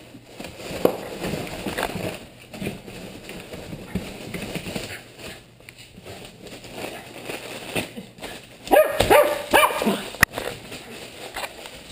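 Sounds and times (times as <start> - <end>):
plastic and bubble wrap crackling: 0.0 - 11.9
dog barking: 8.7 - 10.1.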